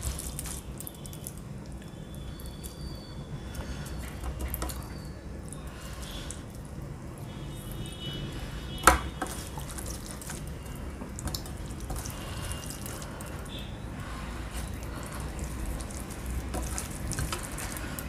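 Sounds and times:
fingers mixing wet food: 0.0 - 18.0.

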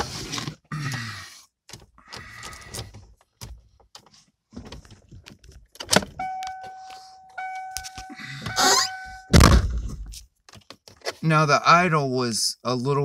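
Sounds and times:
car warning chime: 6.2 - 9.5.

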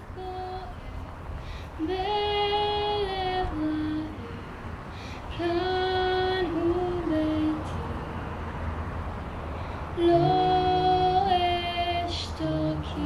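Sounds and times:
low steady hum: 0.0 - 13.0
women singing over loudspeakers: 10.0 - 13.0.

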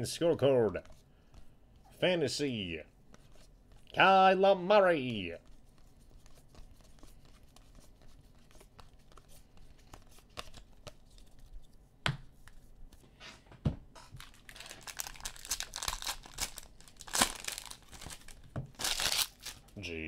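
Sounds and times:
foil pack crinkling and tearing: 14.2 - 19.7.

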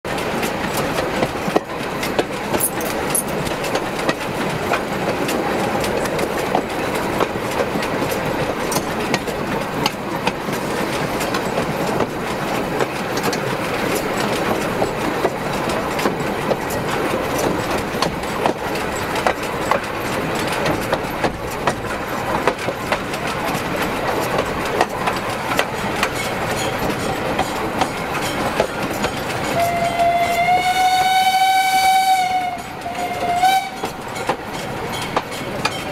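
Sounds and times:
train wheels rumbling on rail: 0.1 - 35.9
wheels clicking and knocking: 0.1 - 35.9.

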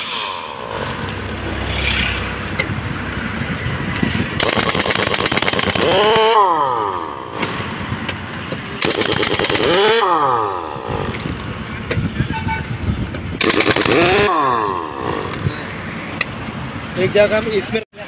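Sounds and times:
air motor whining: 0.0 - 12.0
impact wrench hammering: 4.4 - 11.5.

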